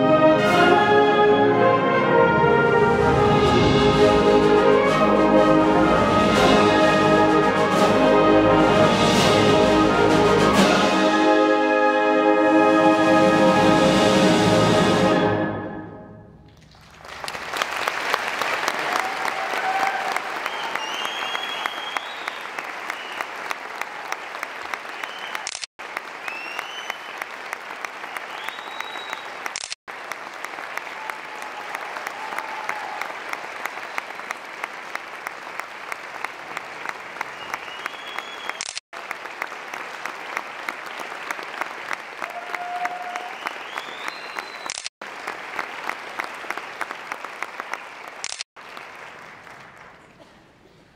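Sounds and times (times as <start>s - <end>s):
symphonic band final chord: 0.0s - 16.3s
audience applauding and cheering: 16.5s - 50.2s
whoops and whistles: 19.2s - 23.3s, 25.0s - 25.5s, 26.2s - 27.2s, 28.2s - 29.3s, 37.4s - 38.6s, 42.2s - 44.8s.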